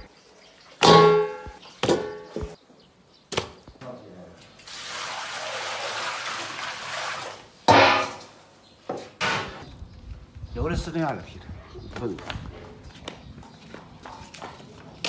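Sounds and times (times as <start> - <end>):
water pouring and splashing: 0.0 - 1.8, 4.4 - 8.3
stainless steel clang: 0.8 - 2.2, 7.7 - 8.3.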